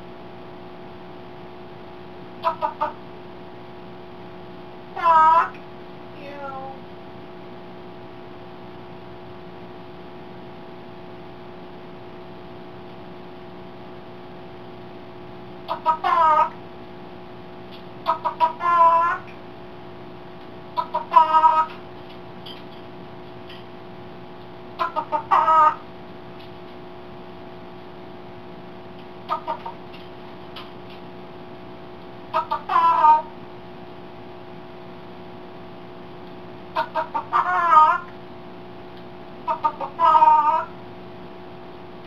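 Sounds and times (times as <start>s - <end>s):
steady electrical hum: 0.0s - 42.0s
parrot imitating chicken clucks: 2.4s - 3.0s, 5.0s - 5.6s, 15.7s - 16.6s, 18.0s - 19.4s, 20.8s - 21.8s, 24.8s - 25.8s, 29.3s - 29.8s, 32.3s - 33.3s, 36.8s - 38.2s, 39.5s - 40.7s.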